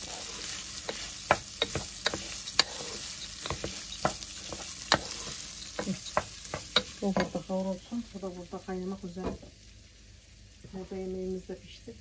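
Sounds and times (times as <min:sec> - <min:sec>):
wooden spoon scraping a pot: 0:00.0 - 0:07.4
rice sizzling in butter: 0:00.0 - 0:11.7.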